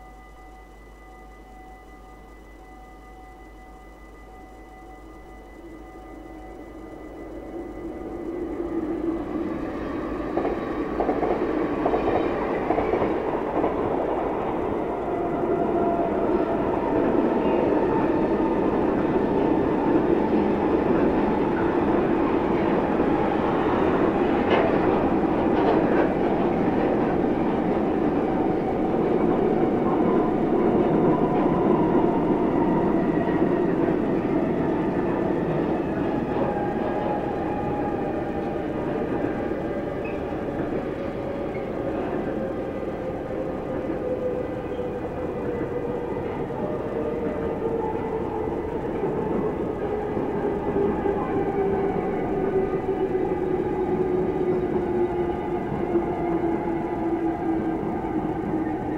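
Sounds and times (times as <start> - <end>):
electric train passing: 0.0 - 58.9
freight train wheels rolling on rails: 3.4 - 58.9.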